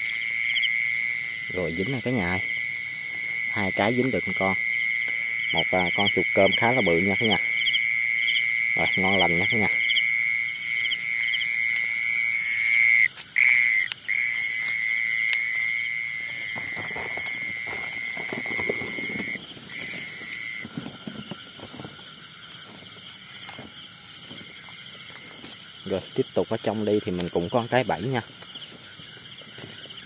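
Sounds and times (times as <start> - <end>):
faint insect chirring: 0.0 - 30.0
insect high continuous trill: 0.0 - 30.0
footsteps rustling through grass: 2.5 - 3.8, 13.0 - 26.2.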